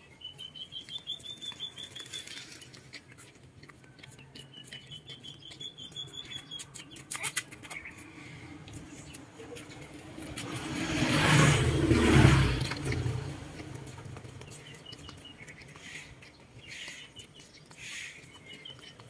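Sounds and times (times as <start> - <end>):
duckling peeping: 0.0 - 10.0, 12.6 - 19.0
vehicle passing close by: 8.2 - 15.2.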